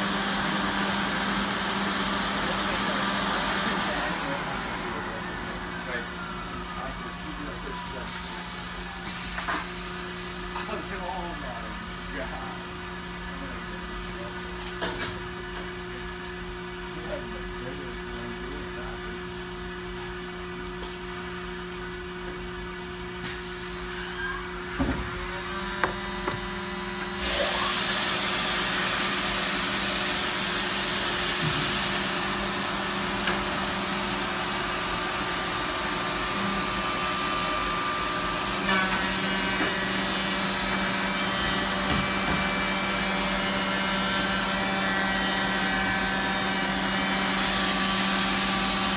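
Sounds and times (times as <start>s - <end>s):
machine humming: 0.0s - 9.2s, 24.0s - 48.9s.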